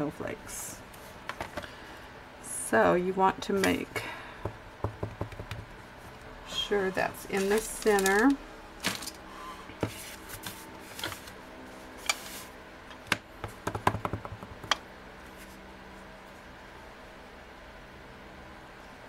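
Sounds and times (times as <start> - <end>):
faint room hum: 0.0 - 19.0
crafting tools clicking and tapping: 12.9 - 14.8.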